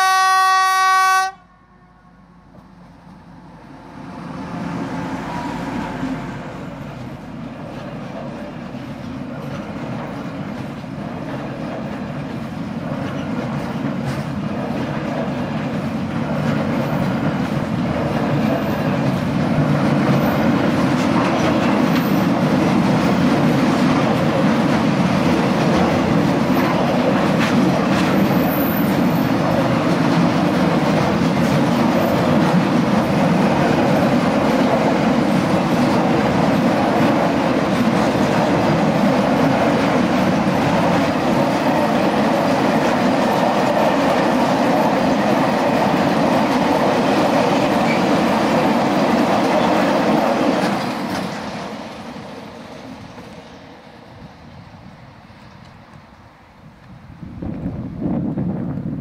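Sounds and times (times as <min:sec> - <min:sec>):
diesel locomotive passing: 0:00.0 - 0:59.0
train wheels clacking over rail joints: 0:06.6 - 0:53.5.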